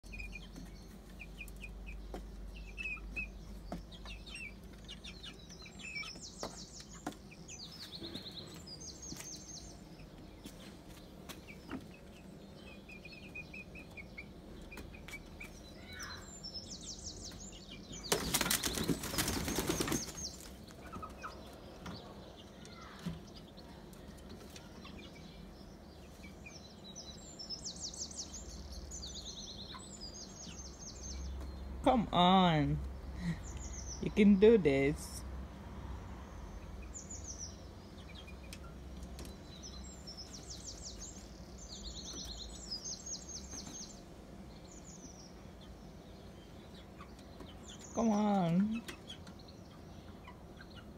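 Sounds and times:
bird chirps and trills: 0.0 - 32.2, 36.4 - 50.9
chicken flapping wings: 18.1 - 20.6.

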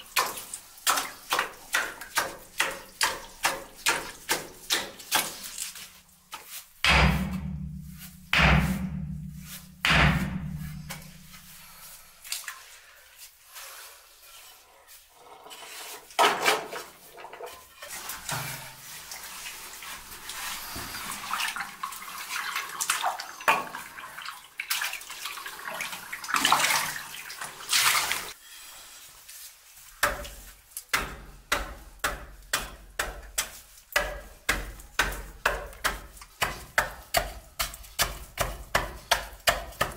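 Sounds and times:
wet scraping and splashing: 0.0 - 28.4
hand axe chopping stone: 0.2 - 5.4, 6.8 - 11.2, 30.0 - 30.3, 30.9 - 39.9
tool strikes on stone: 6.8 - 11.2, 30.9 - 39.9.

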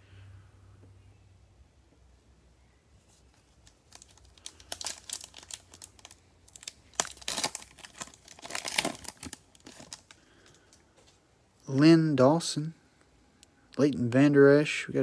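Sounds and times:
foil wrapper crinkling and tearing: 3.4 - 10.8.

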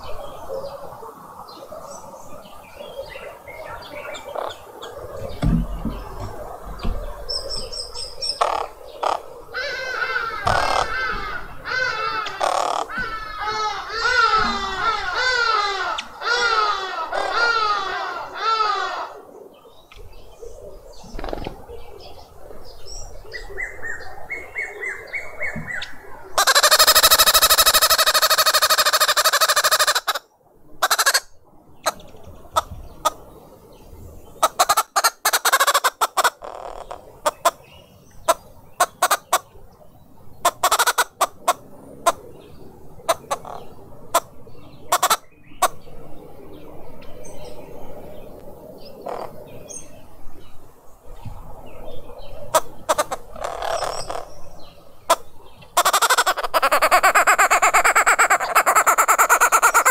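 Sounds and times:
birds cackling loudly: 0.0 - 50.6, 51.3 - 59.9
quiet bird calls: 0.0 - 59.9
sharp taps and knocks: 5.2 - 7.1.

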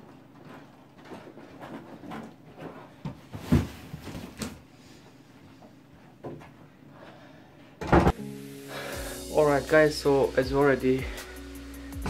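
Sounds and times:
cardboard parcels thumping down: 3.1 - 4.6.

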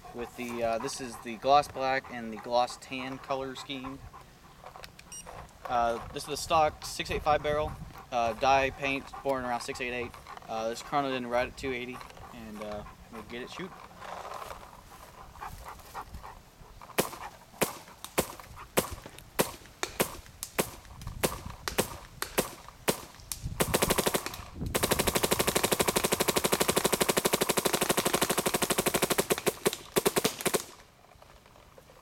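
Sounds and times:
paintball marker firing: 17.0 - 30.8.

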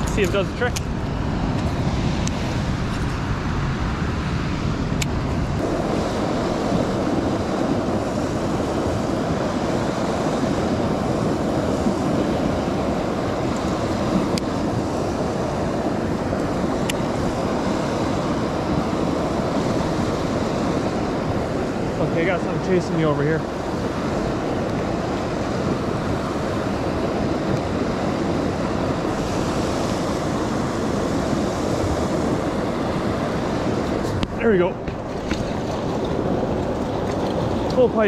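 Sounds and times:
river water rushing: 5.6 - 38.0.

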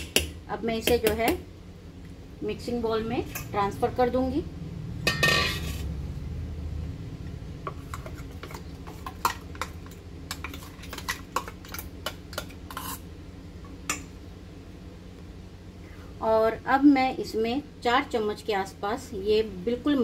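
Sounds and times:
metal spoon scraping steel jar: 5.1 - 5.9, 12.7 - 13.0.

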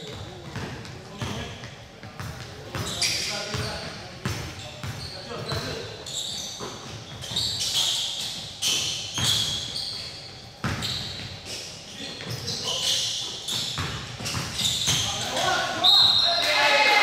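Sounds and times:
sneaker squeaks: 0.0 - 16.6
basketball bouncing on hardwood: 13.5 - 15.0
players' voices: 14.3 - 17.0.

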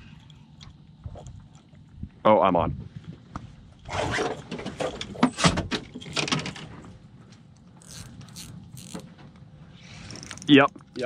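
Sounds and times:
fishing reel clicks and knocks: 7.8 - 9.0, 10.1 - 10.8.

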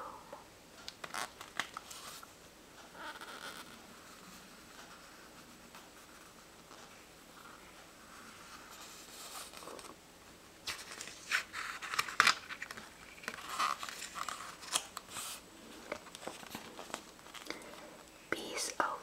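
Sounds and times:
book pages turning: 0.9 - 2.3, 8.4 - 10.0, 10.6 - 17.6.

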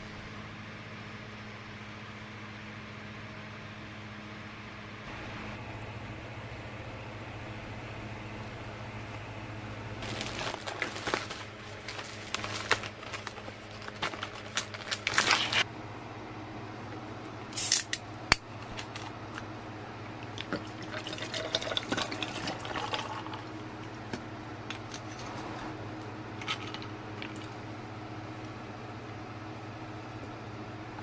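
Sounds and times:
liquid pouring into glass jar: 20.4 - 23.6.

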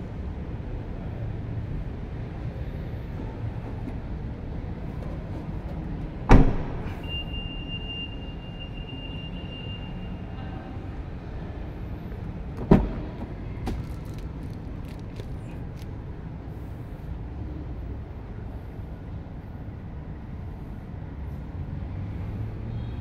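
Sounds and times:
tailgate shutting thump: 5.0 - 7.0, 12.6 - 13.8
car door thud: 5.7 - 6.9, 12.6 - 14.0.

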